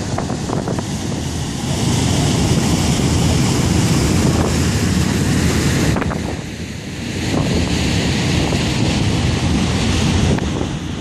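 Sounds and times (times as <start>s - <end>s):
rush of water from ship wake: 0.0s - 11.0s
wind buffeting microphone: 0.0s - 11.0s.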